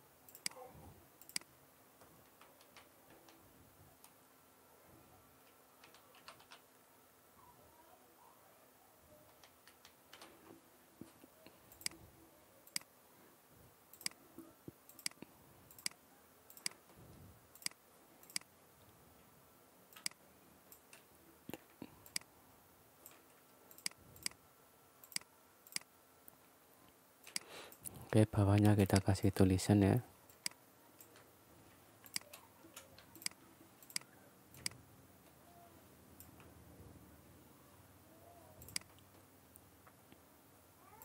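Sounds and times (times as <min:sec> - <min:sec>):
computer mouse clicking: 0:00.3 - 0:00.6, 0:01.2 - 0:01.5, 0:05.4 - 0:06.7, 0:09.3 - 0:10.3, 0:11.7 - 0:12.0, 0:12.6 - 0:12.9, 0:13.9 - 0:14.2, 0:14.9 - 0:16.9, 0:17.6 - 0:18.5, 0:19.9 - 0:21.1, 0:22.0 - 0:22.3, 0:23.0 - 0:24.4, 0:25.0 - 0:25.9, 0:27.2 - 0:27.9, 0:30.3 - 0:31.3, 0:32.0 - 0:34.8, 0:38.6 - 0:39.1.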